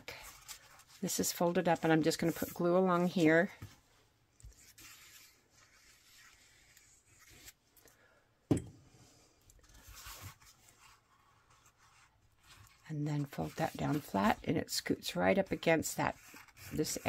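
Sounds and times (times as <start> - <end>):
glue stick rubbing on card: 4.4 - 7.6, 15.5 - 17.0.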